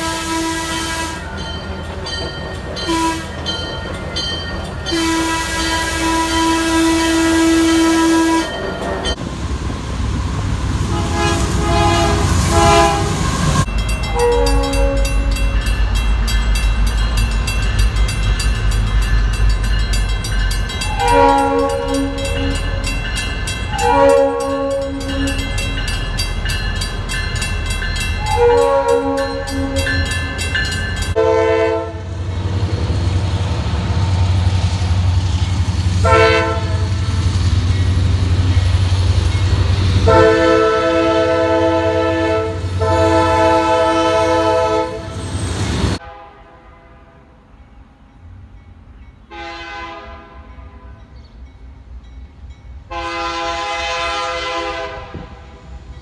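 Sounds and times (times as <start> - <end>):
locomotive air horn blasts: 0.0 - 1.4, 2.8 - 3.4, 4.9 - 9.1, 10.8 - 15.5, 20.8 - 22.7, 23.7 - 25.6, 28.2 - 30.0, 31.2 - 32.1, 36.0 - 37.0, 40.0 - 45.2, 46.0 - 47.3, 49.3 - 51.0, 52.9 - 55.6
train rumble: 0.0 - 46.6, 47.2 - 56.0
crossing bell ringing: 1.0 - 6.7, 7.6 - 9.3, 12.6 - 31.6, 35.2 - 44.7, 50.4 - 53.3.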